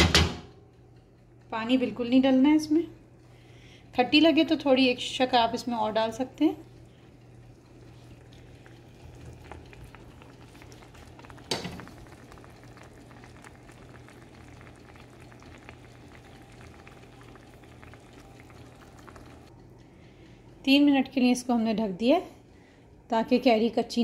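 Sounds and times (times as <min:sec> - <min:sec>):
fruit and sugar bubbling in pan: 0:04.0 - 0:19.5.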